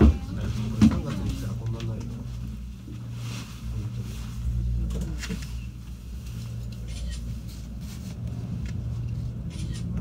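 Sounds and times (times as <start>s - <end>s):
gondola cabin rumble: 0.0s - 10.0s.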